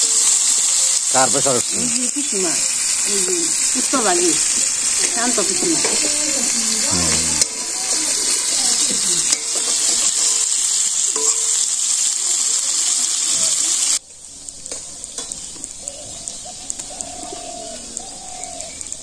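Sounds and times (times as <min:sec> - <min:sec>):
fish frying in hot oil: 0:00.0 - 0:19.0
spatula scraping a wok: 0:02.6 - 0:11.7.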